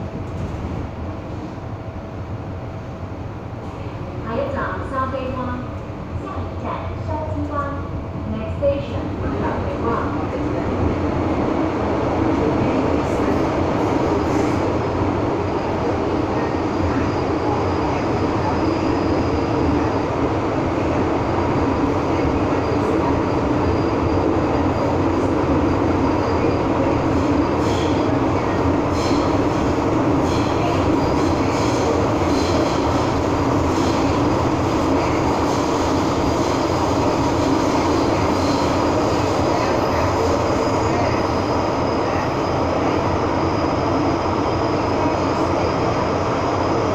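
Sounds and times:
metro car rumble in tunnel: 0.0s - 46.9s.

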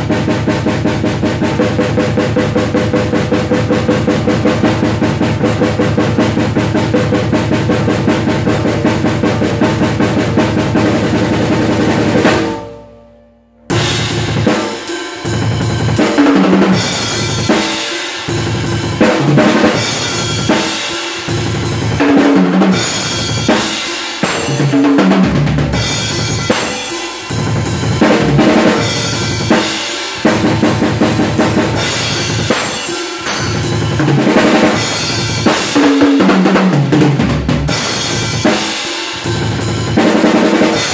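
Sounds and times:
drum kit played hard: 0.0s - 40.9s
cymbals: 8.3s - 40.9s.

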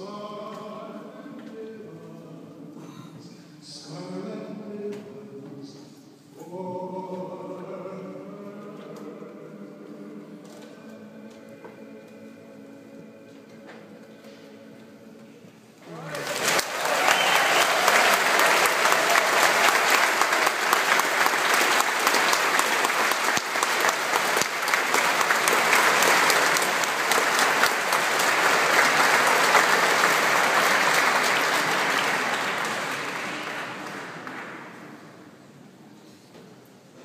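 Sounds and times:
audience applauding: 16.0s - 35.1s.

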